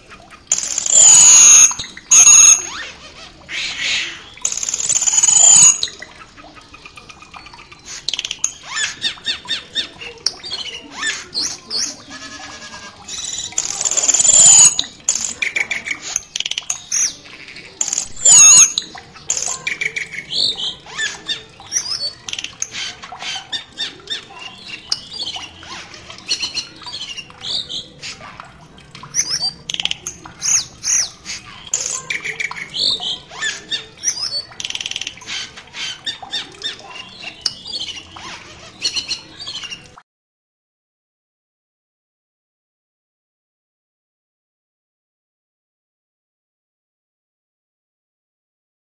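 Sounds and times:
starling chirping and whistling: 0:00.5 - 0:28.4, 0:29.0 - 0:39.9.

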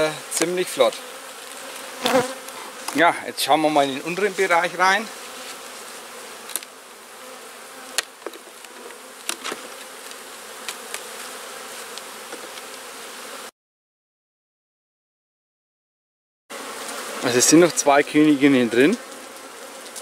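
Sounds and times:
honeybees buzzing: 0:00.0 - 0:13.5, 0:16.5 - 0:20.0.

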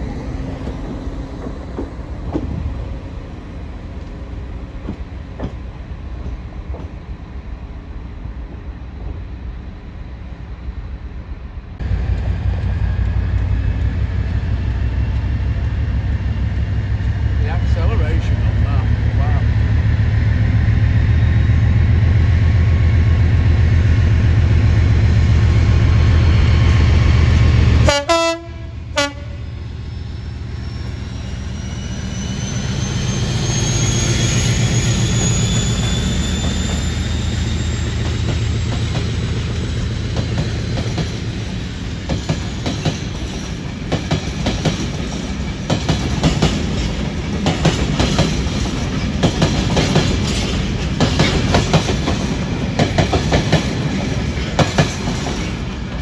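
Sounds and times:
diesel locomotive engine throbbing: 0:10.5 - 0:56.0
locomotive whistle: 0:27.8 - 0:38.4.

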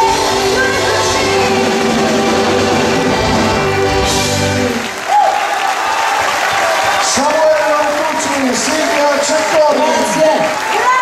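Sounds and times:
button accordion held chord: 0:00.0 - 0:04.8
live folk band playing: 0:00.0 - 0:04.9.

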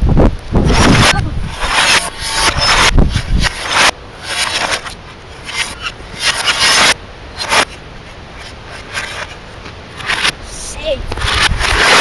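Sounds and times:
plastic and glass debris scraping: 0:00.8 - 0:07.8.

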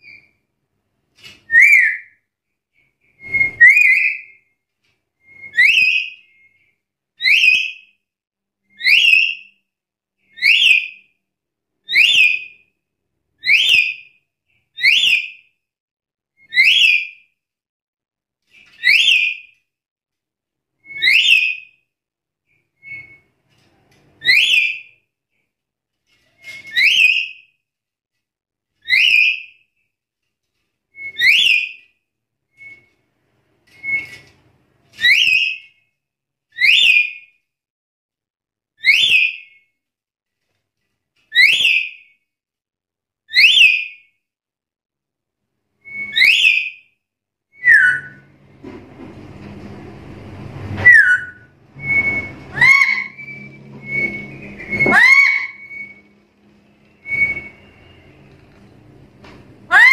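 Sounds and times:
parrot giving whistled calls: 0:45.9 - 0:46.7, 0:47.6 - 0:48.2, 0:50.9 - 0:56.1, 0:57.0 - 0:57.7.

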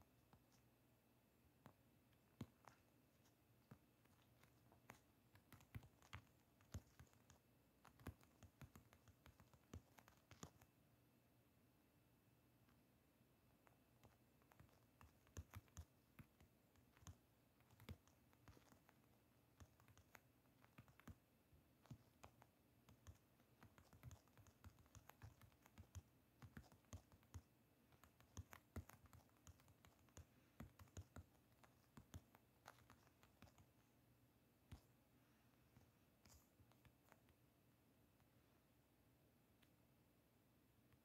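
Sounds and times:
taps on phone keyboard: 0:21.9 - 0:33.7.

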